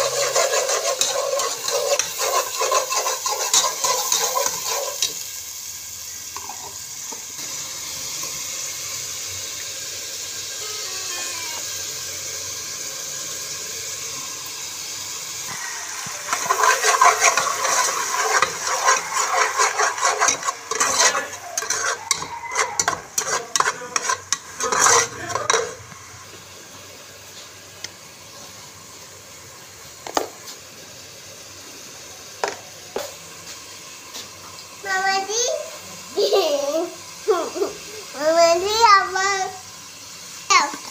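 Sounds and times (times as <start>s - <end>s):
metal spoon scraping a pot: 0.0s - 5.2s, 15.9s - 25.9s
oil sizzling: 0.0s - 40.9s.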